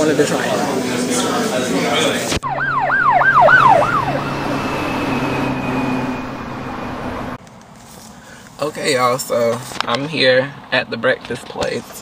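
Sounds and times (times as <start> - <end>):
people talking: 0.0 - 2.4, 8.6 - 12.0
siren in fast yelp: 2.4 - 7.4.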